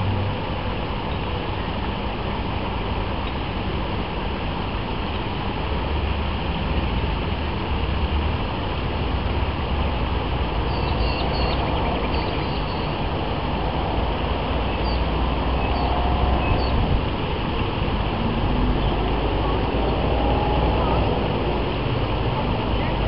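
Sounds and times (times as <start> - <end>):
outdoor rumble and hiss: 0.0 - 23.0
high bird chirps: 10.7 - 12.9.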